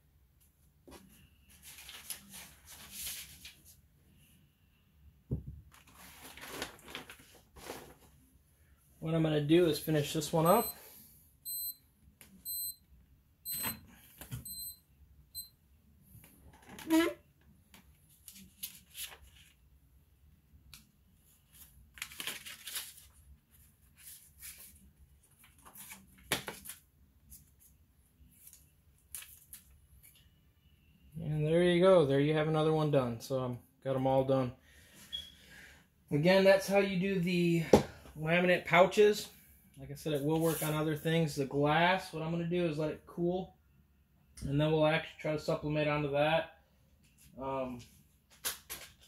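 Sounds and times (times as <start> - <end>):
paper rustling and crinkling: 0.9 - 3.8, 5.7 - 8.2, 18.0 - 19.6, 21.2 - 27.7, 28.3 - 30.2.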